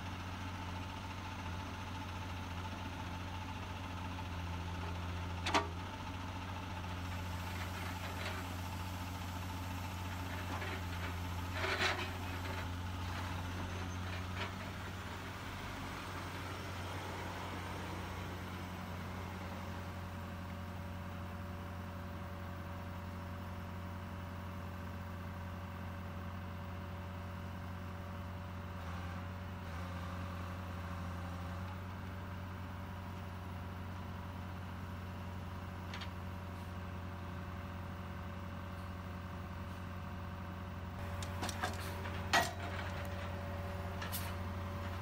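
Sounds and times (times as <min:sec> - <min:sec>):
heavy diesel engines droning: 0:00.0 - 0:23.1, 0:28.2 - 0:45.0
metal clanks: 0:41.0 - 0:45.0.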